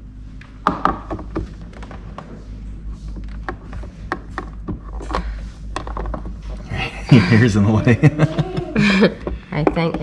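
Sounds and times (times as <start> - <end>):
plastic clicks and knocks: 3.2 - 6.4.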